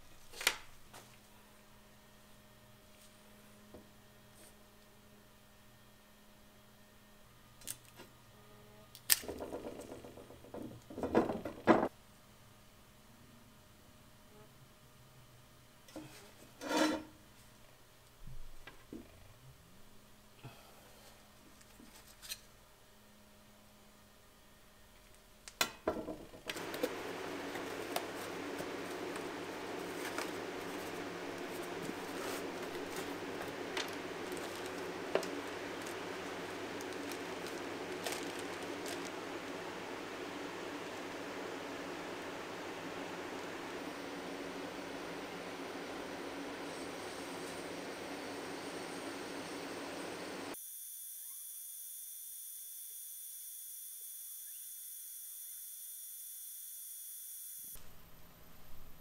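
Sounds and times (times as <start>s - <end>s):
knocks on wooden bench: 9.3s - 11.9s, 25.9s - 26.5s
steady background hiss: 10.7s - 50.6s
rubbing and rustling: 26.6s - 39.2s.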